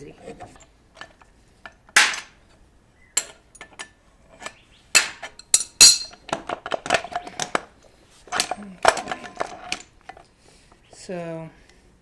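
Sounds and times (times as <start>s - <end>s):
wrench metallic clinks: 5.4s - 6.2s.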